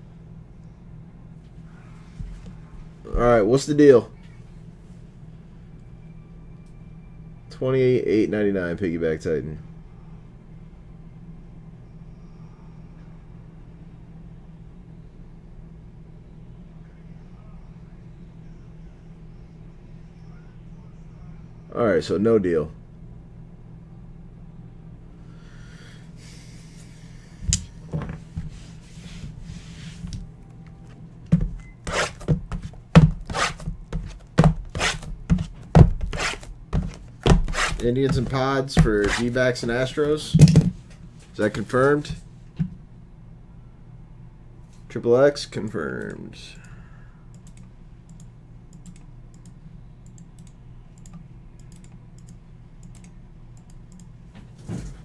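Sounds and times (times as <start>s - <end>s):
steady low hum: 0.0s - 55.0s
cardboard boxes rubbing: 31.9s - 39.4s.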